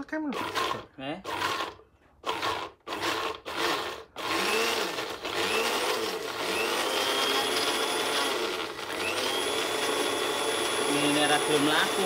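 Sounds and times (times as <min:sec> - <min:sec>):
blender grinding: 0:00.3 - 0:12.0.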